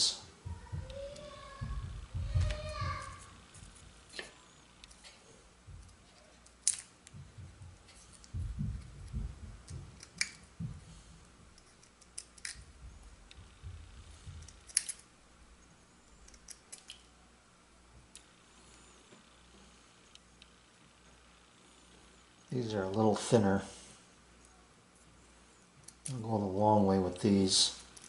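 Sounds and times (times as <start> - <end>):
soft handling bumps: 0.4 - 4.4, 7.1 - 11.6.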